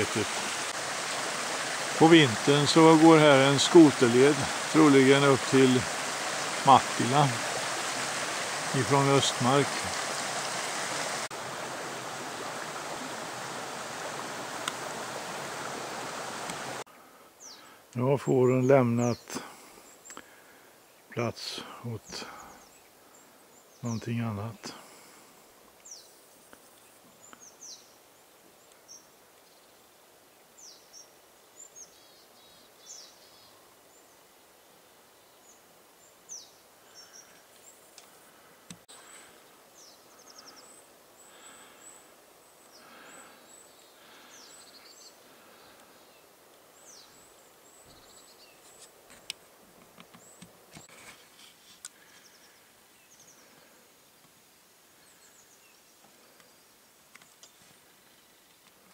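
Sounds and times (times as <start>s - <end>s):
small birds chirping: 17.0s - 25.1s, 25.8s - 58.9s
faint clicks: 51.8s - 52.0s.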